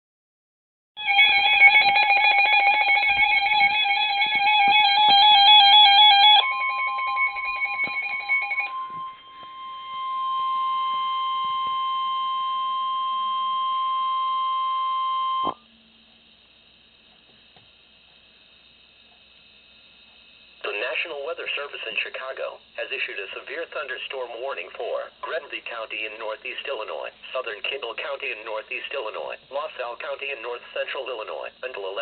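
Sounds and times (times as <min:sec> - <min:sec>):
fast-pulsing electronic alarm: 0:01.0 - 0:15.5.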